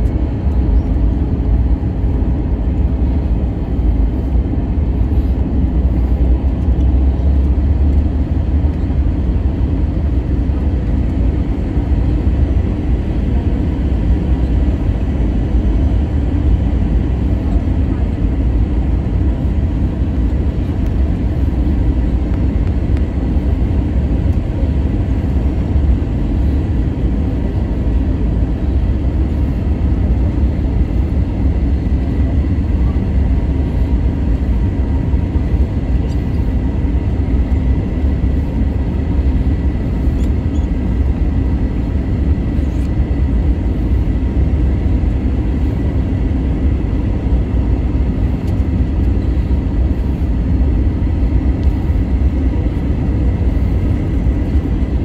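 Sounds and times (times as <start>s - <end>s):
airliner cabin rumble: 0.0s - 55.0s
faint high whine: 11.8s - 55.0s.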